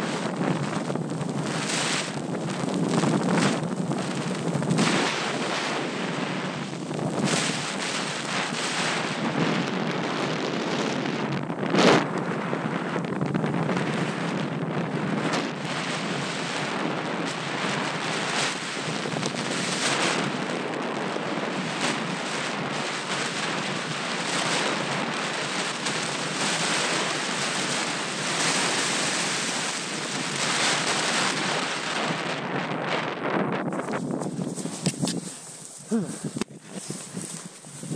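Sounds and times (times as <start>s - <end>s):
wind rushing over microphone: 0.0s - 37.9s.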